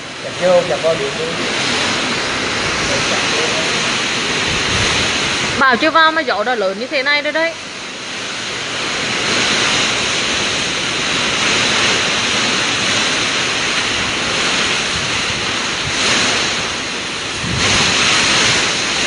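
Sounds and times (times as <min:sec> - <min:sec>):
driving rain: 0:00.0 - 0:19.0
strong wind gusting: 0:00.0 - 0:19.0.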